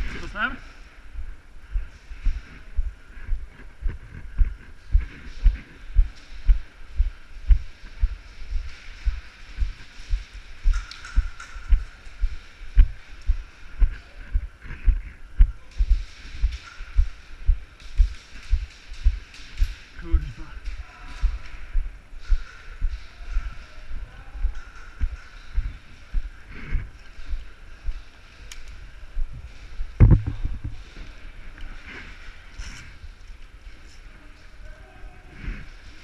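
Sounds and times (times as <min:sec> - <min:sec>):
footsteps low thuds: 0:01.1 - 0:28.0, 0:29.2 - 0:31.0.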